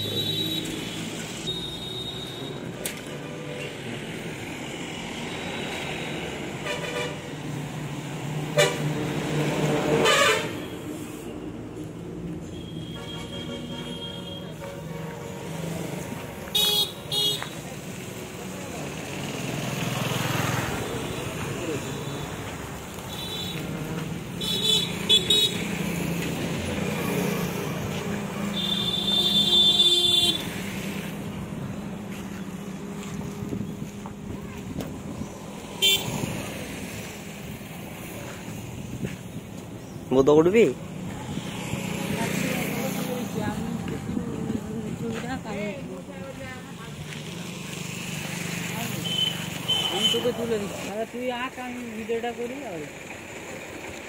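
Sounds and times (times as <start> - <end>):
traffic engine hum: 0.0 - 54.0
vehicle horn toots: 10.0 - 10.7, 12.5 - 15.3, 28.5 - 30.5.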